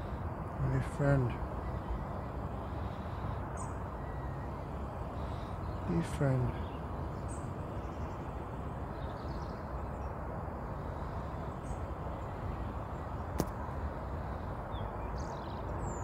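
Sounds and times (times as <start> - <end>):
faint bird chirps: 0.0 - 16.0
sharp click: 13.4 - 13.6.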